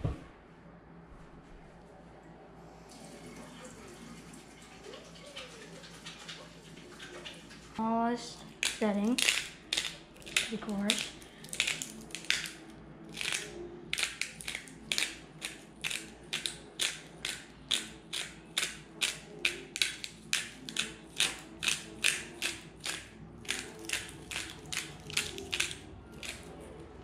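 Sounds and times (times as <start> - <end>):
spice grinder rasping: 8.5 - 19.2.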